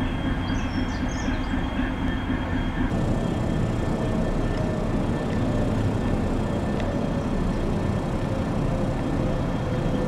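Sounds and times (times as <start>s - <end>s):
diesel locomotive idling: 0.0s - 10.0s
faint steady whines: 0.0s - 10.0s.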